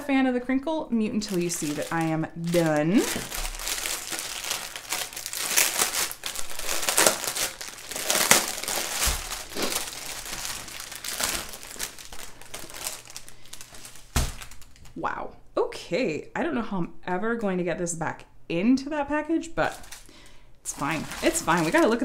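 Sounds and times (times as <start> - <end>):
plastic packaging crinkling: 1.1 - 15.0, 19.6 - 22.0.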